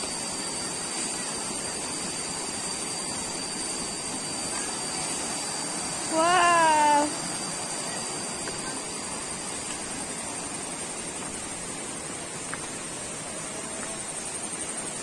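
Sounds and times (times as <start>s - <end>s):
high-pitched insect drone: 0.0s - 15.0s
long loud cry: 6.1s - 7.2s.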